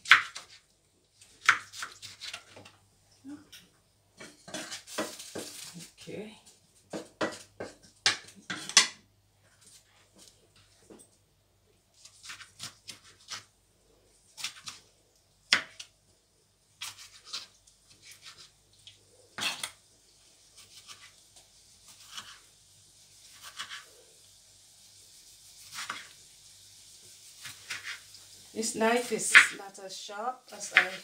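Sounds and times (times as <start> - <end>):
knife slicing tomato: 0.0 - 0.6, 1.2 - 2.7, 4.2 - 5.7, 6.9 - 8.8, 12.0 - 13.5, 14.4 - 14.8, 16.8 - 18.6, 20.6 - 21.2, 21.8 - 22.5, 23.2 - 23.9, 25.5 - 26.2, 27.4 - 28.2, 30.6 - 31.0.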